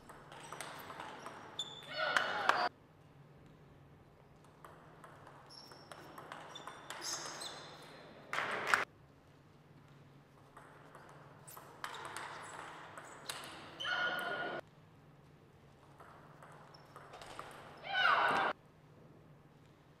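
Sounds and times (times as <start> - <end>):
table tennis ball hits: 0.0 - 2.7, 4.4 - 8.8, 10.5 - 14.6, 15.9 - 18.5.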